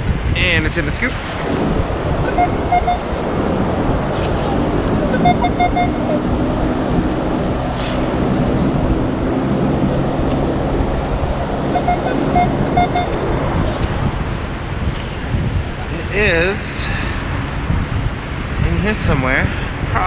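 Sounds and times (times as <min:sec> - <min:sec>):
wind and surf: 0:00.0 - 0:20.0
metal detector beeps: 0:02.3 - 0:03.0, 0:05.1 - 0:06.2, 0:11.7 - 0:13.2.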